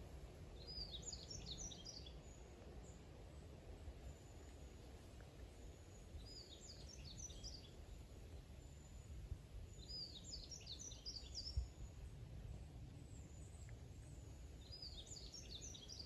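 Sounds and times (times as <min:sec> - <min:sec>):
small bird singing: 0:00.6 - 0:03.0, 0:05.9 - 0:08.0, 0:09.7 - 0:12.0, 0:13.0 - 0:16.0
low outdoor rumble: 0:11.2 - 0:16.0.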